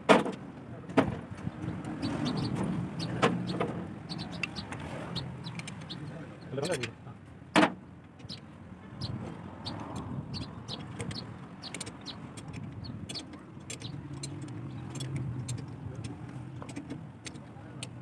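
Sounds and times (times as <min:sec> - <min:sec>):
wrench clicking on bolts: 0:05.4 - 0:06.0, 0:10.4 - 0:18.0.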